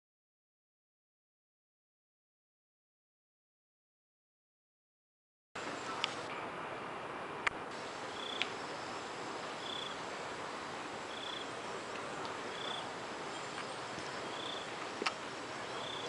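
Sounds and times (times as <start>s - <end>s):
steady hiss: 5.6s - 16.0s
insect chirping: 7.8s - 16.0s.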